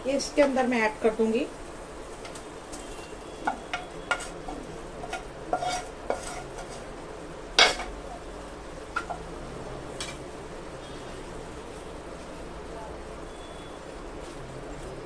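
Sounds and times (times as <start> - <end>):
spatula scraping and knocking pan: 3.0 - 6.9, 7.6 - 8.0, 8.9 - 9.3.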